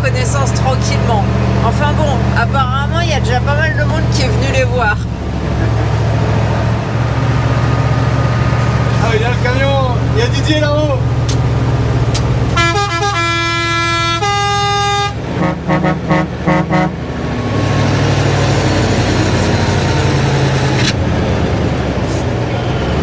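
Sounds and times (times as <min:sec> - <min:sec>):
diesel truck engine running: 0:00.0 - 0:23.0
truck horn blasts and toots: 0:12.5 - 0:17.2.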